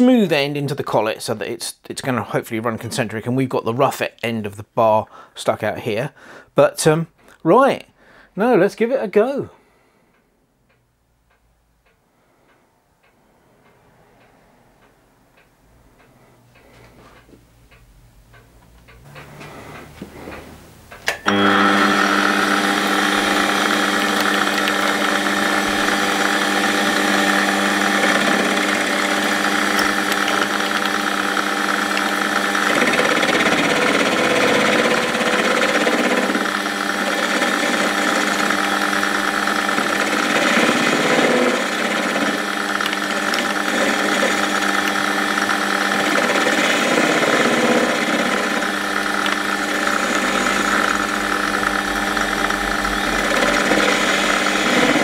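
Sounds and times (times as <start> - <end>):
metal lathe motor humming: 21.1 - 55.0.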